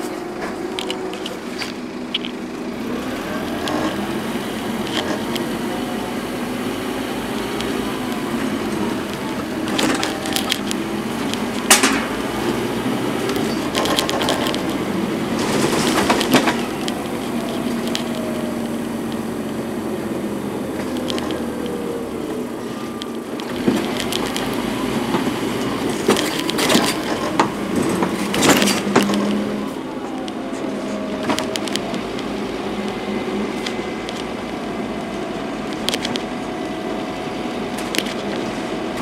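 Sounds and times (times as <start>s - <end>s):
bus diesel engine running: 0.0s - 39.0s
sharp crack: 9.1s - 12.4s.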